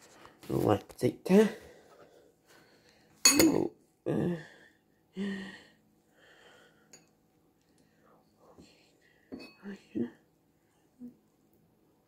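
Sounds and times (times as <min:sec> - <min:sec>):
person making breathy vocal sounds: 0:04.1 - 0:04.6.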